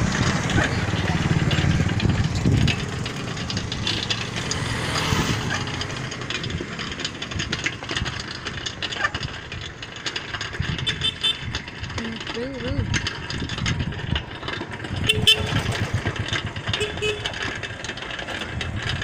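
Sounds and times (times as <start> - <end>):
bike and phone rattling: 0.0 - 19.0
motor vehicle engine running: 0.0 - 19.0
wind on microphone: 1.7 - 3.0.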